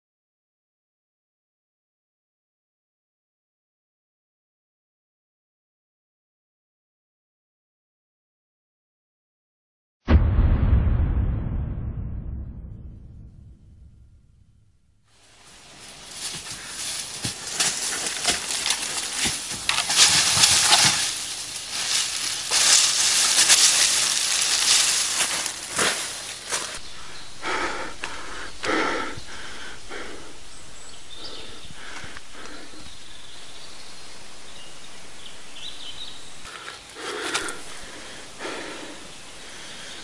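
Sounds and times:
steady outdoor hiss: 15.1 - 40.0
dry leaves rustling and crunching: 15.2 - 26.8.

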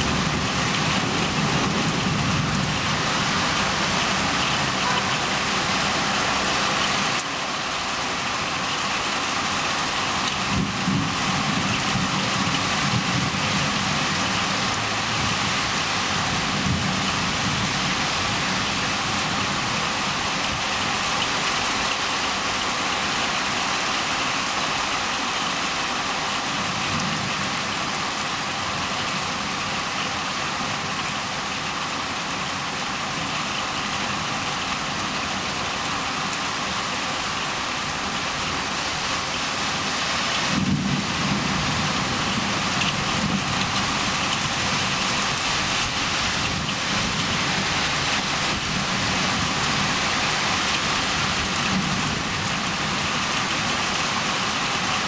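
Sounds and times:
thunder rumbling: 0.0 - 5.7, 40.4 - 50.1
heavy rain: 0.0 - 55.0.

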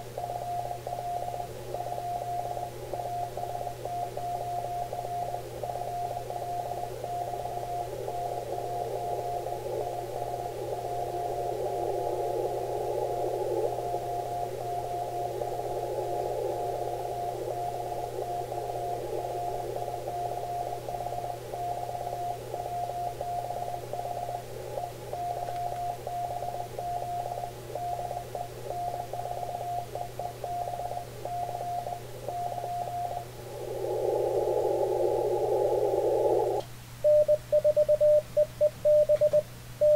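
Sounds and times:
low hum: 0.0 - 39.9
radio band hiss: 6.6 - 24.8, 32.2 - 36.7
morse code tone: 37.0 - 39.9.

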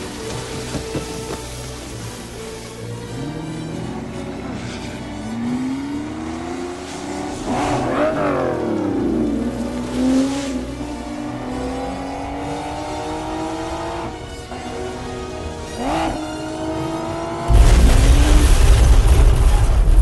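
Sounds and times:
film score music: 0.0 - 20.0
car engine revving: 2.8 - 18.6.

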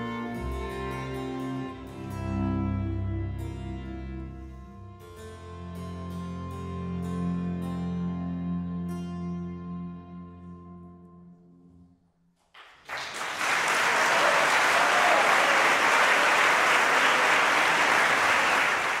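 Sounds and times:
harpsichord and strings chord: 0.0 - 10.9
audience applause: 12.6 - 19.0.

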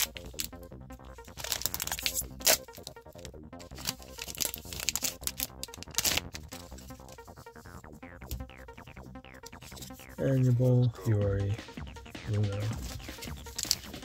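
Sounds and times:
foil wrapper crinkling and tearing: 0.0 - 0.5, 1.2 - 7.6, 13.0 - 14.0
background music: 0.0 - 14.0.

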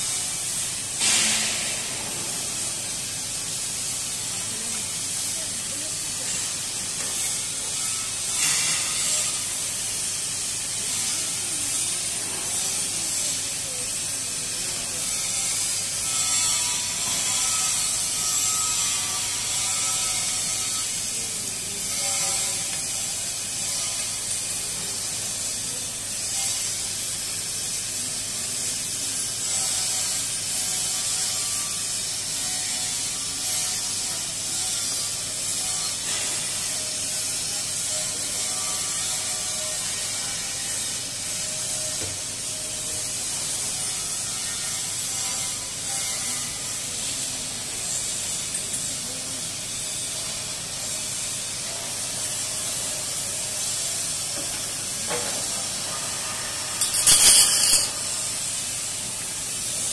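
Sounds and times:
workshop machinery din: 0.0 - 24.9, 54.2 - 58.5.

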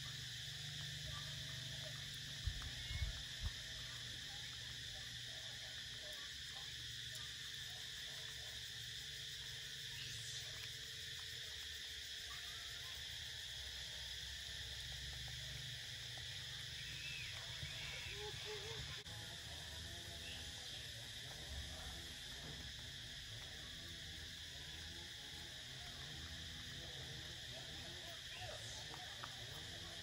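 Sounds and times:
insects chirring: 0.0 - 30.0.

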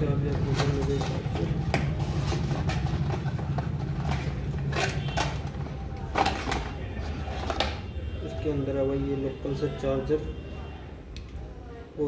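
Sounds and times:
cardboard box rustling and scraping: 0.3 - 5.6.

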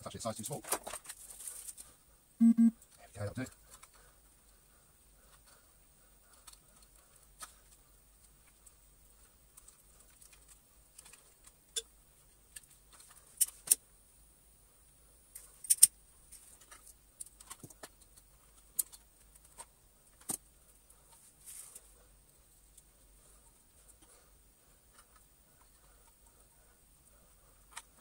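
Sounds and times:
clicks of small parts and tools: 15.4 - 15.9.

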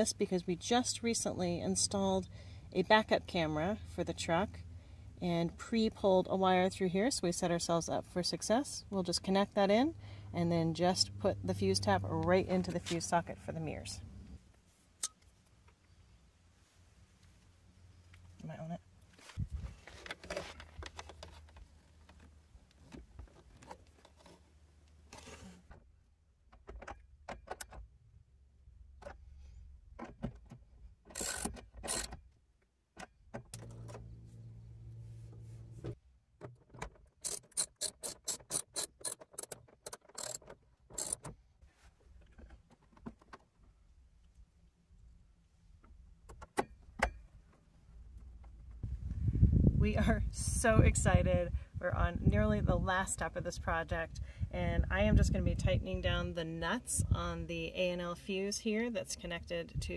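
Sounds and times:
hand tools clicking and rattling: 31.1 - 32.2, 37.2 - 41.3.

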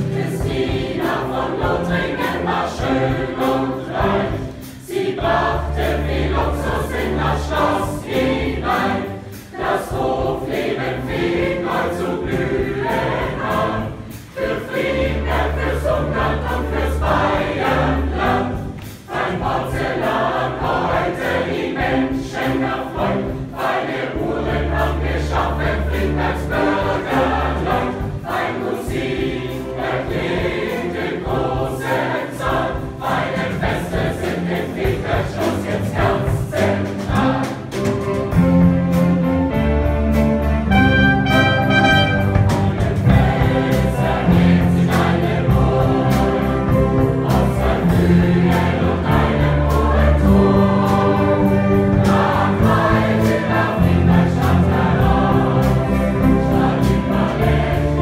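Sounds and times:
mixed youth choir singing: 0.0 - 58.0.

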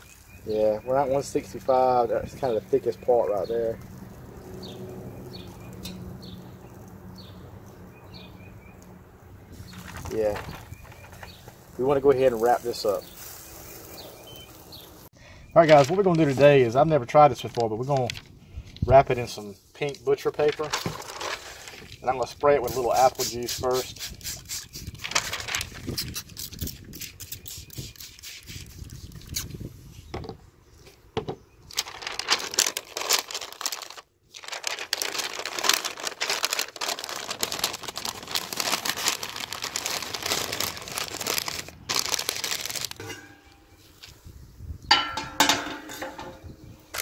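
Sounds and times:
paper crinkling and rustling: 9.6 - 13.4, 15.6 - 23.8, 25.0 - 26.6, 31.7 - 44.2
spray bottle spritzes: 12.4 - 14.5.

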